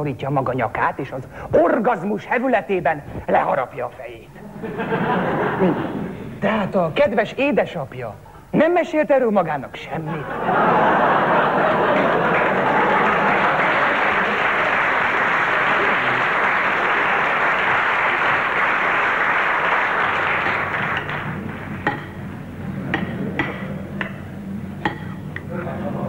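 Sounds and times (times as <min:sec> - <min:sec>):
studio audience applauding: 0:11.0 - 0:21.8.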